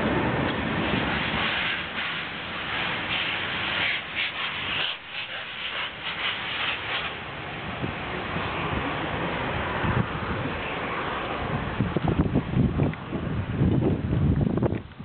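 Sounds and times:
train rumble: 0:00.0 - 0:15.0
wind on microphone: 0:00.0 - 0:15.0
rushing hiss: 0:00.2 - 0:09.3.

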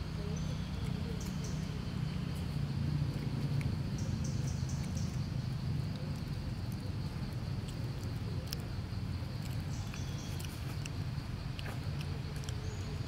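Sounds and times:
small clicks and rustles: 0:05.8 - 0:12.7
bird chirps: 0:09.5 - 0:10.6.

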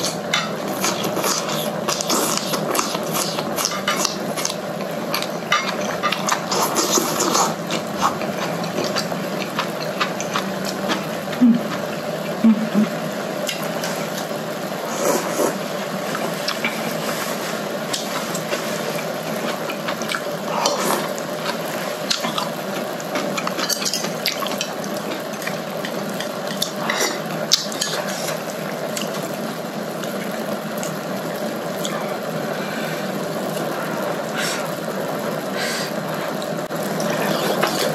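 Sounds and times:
chewing: 0:00.0 - 0:11.9, 0:14.9 - 0:29.2
slurping: 0:05.9 - 0:11.8.

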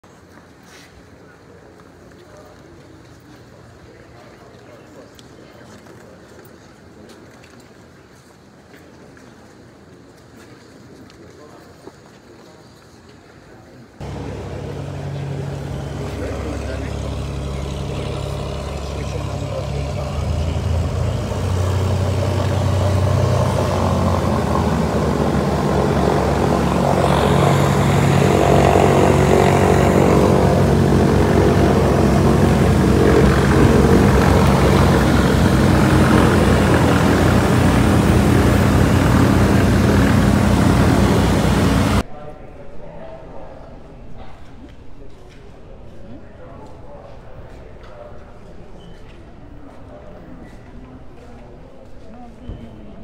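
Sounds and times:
propeller aircraft taxiing: 0:14.0 - 0:42.0.

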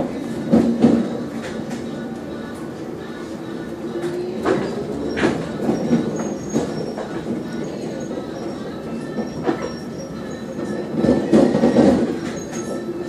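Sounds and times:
bus rumble: 0:00.0 - 0:13.0
rattles and knocks from bus body: 0:11.0 - 0:12.8.

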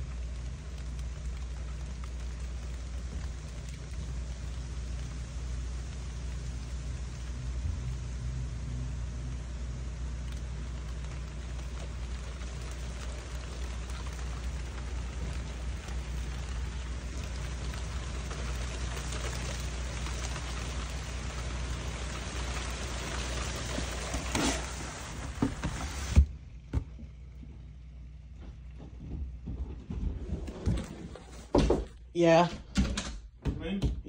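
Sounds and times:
rain falling: 0:00.0 - 0:28.8
steady low hum: 0:00.0 - 0:34.0
knocks: 0:28.4 - 0:34.0
loud thump: 0:31.4 - 0:32.0.

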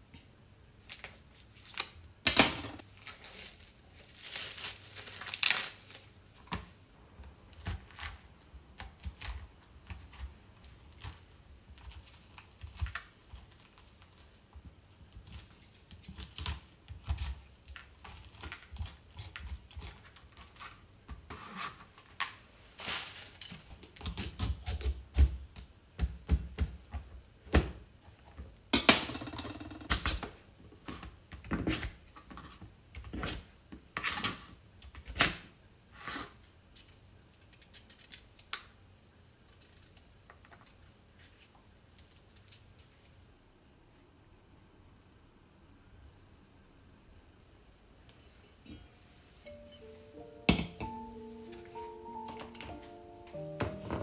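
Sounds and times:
plastic wrap crinkling: 0:02.8 - 0:06.5.

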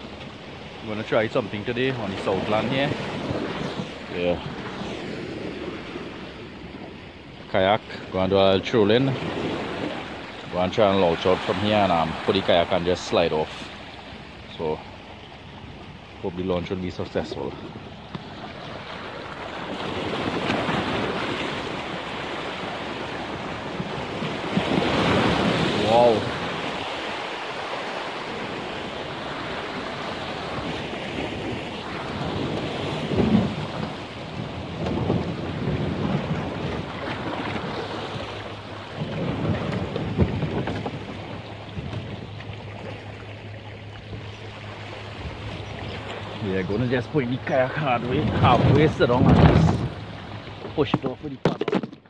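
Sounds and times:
waves washing over rocks: 0:00.8 - 0:06.2, 0:07.6 - 0:14.8, 0:16.3 - 0:42.0, 0:44.7 - 0:52.0
wind buffeting microphone: 0:01.5 - 0:06.9, 0:17.0 - 0:51.3.

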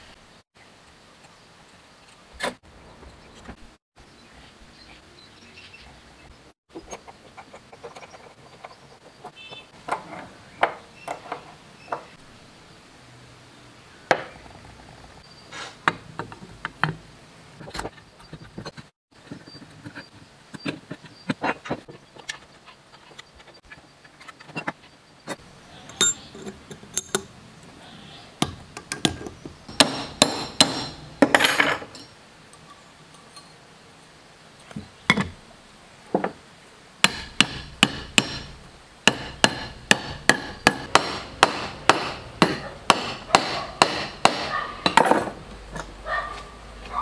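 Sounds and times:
hammer tapping on metal: 0:28.4 - 0:31.4, 0:37.0 - 0:45.3.

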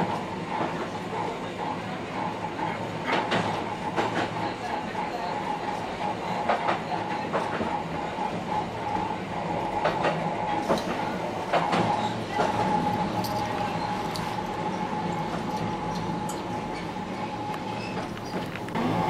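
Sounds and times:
electric train whine: 0:07.5 - 0:19.0
wheels clicking over rail joints: 0:09.7 - 0:19.0.

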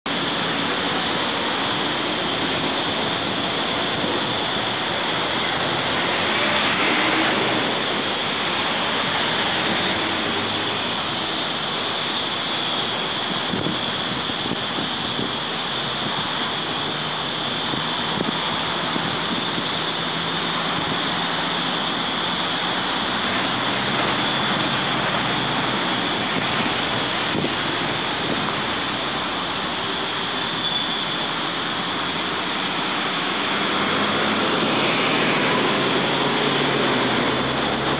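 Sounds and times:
road traffic noise: 0:00.0 - 0:37.9
vehicle passing: 0:02.0 - 0:11.3, 0:33.0 - 0:37.9.

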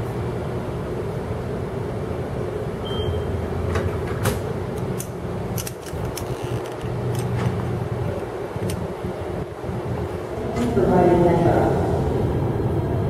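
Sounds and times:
low city hum: 0:00.0 - 0:13.0
card reader beep: 0:02.8 - 0:03.3.

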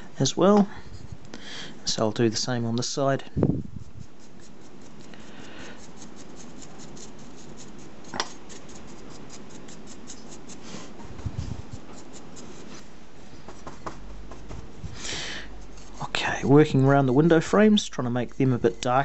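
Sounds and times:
dry paintbrush scratching: 0:03.5 - 0:12.9, 0:13.6 - 0:19.0.

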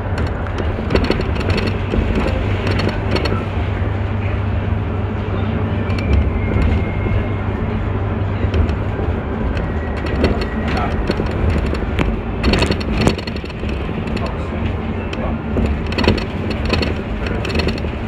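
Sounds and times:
light clicks and rattles: 0:00.0 - 0:03.5, 0:08.5 - 0:18.0
bus engine drone: 0:00.0 - 0:18.0
road noise: 0:00.0 - 0:18.0.

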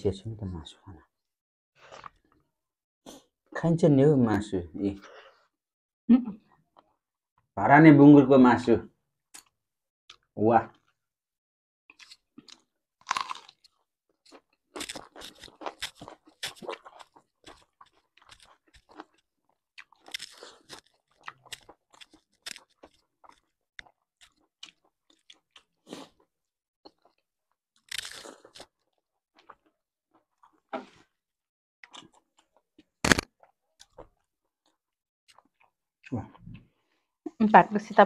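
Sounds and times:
chewing and crunching: 0:11.9 - 0:31.1, 0:31.8 - 0:36.8.

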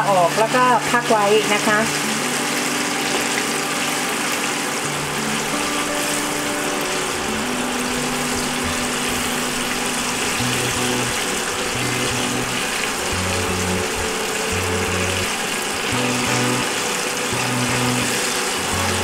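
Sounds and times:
fish deep-frying in oil: 0:00.0 - 0:19.0.

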